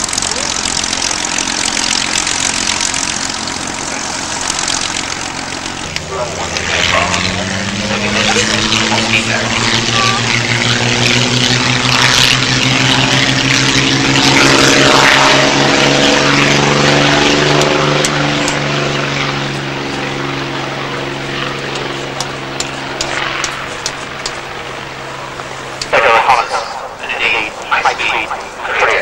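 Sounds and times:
aircraft engines at high power: 0:00.0 - 0:29.0.

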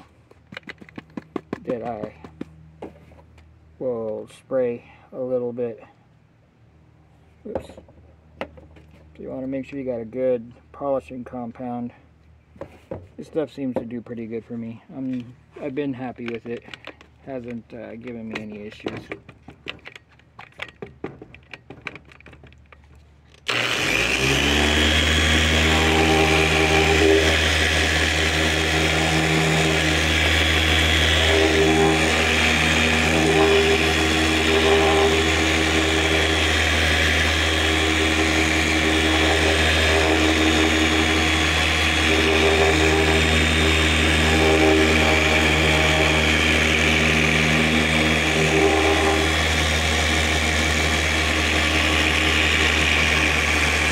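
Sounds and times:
electric polisher running: 0:23.5 - 0:53.9.

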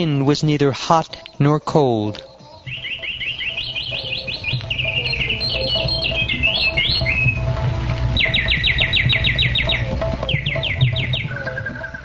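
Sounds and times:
birds chirping and trilling: 0:00.0 - 0:12.0
soft background music: 0:00.0 - 0:12.0
fast even trill: 0:02.6 - 0:12.0.

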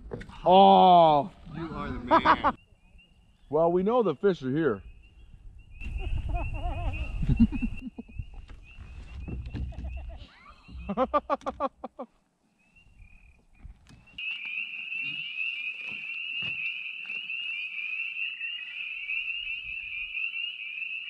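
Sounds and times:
dull knocks: 0:08.5 - 0:11.7
frogs trilling chorus: 0:12.9 - 0:13.4, 0:14.2 - 0:21.0.

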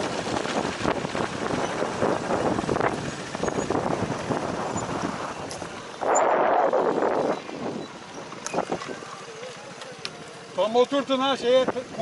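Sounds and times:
wind buffeting microphone: 0:00.0 - 0:09.0
scooter engine: 0:00.0 - 0:12.0.

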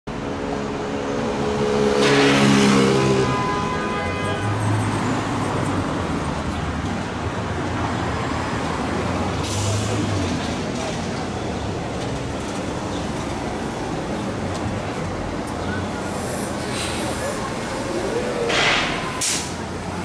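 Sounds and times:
low engine hum of traffic: 0:00.1 - 0:20.0
car passing close by: 0:01.6 - 0:03.5.

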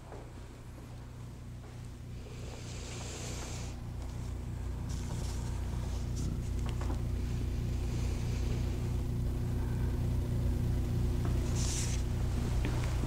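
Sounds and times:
organ sustained low chords: 0:03.8 - 0:13.0.

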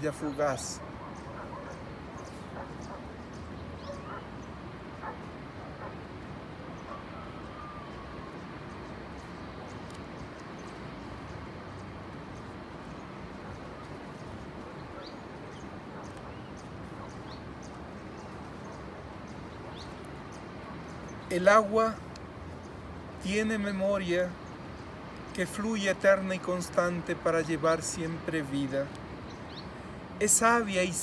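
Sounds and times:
outdoor background hiss: 0:00.0 - 0:31.0
faint animal calls: 0:06.8 - 0:08.5
small soft clicks: 0:09.7 - 0:10.7.

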